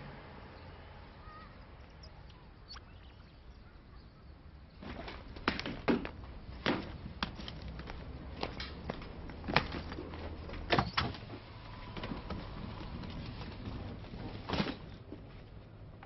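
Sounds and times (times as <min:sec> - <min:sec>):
street ambience: 0:00.0 - 0:16.0
faint bird chirps: 0:00.4 - 0:04.7
footsteps on outdoor steps: 0:04.8 - 0:16.0.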